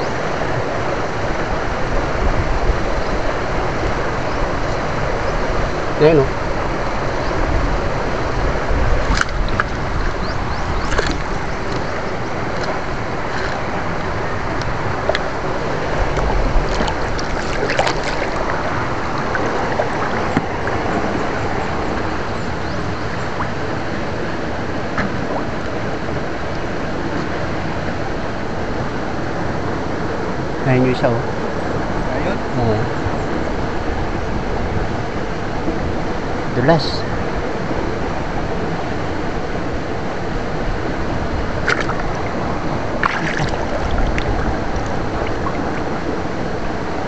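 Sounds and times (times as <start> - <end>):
shallow water sloshing: 8.8 - 23.8, 41.4 - 46.6.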